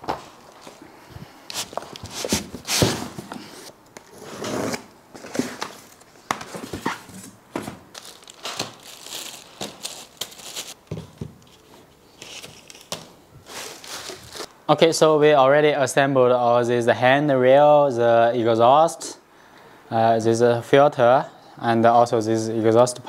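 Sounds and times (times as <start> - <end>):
plastic wrap crinkling: 5.2 - 14.5.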